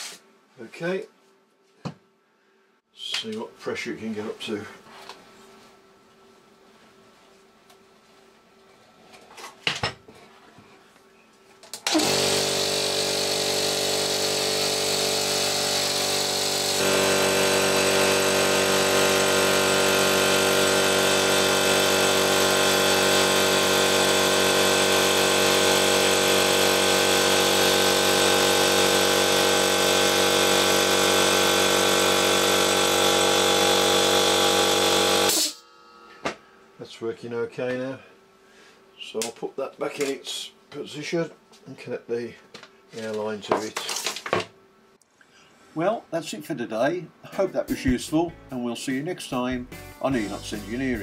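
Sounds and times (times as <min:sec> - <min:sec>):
electric air compressor running: 0:11.8 - 0:35.6.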